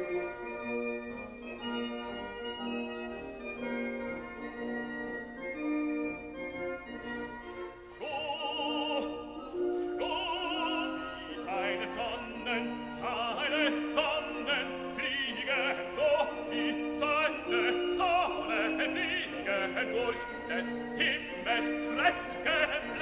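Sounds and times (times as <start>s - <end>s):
operatic voice singing: 8.0s - 23.0s.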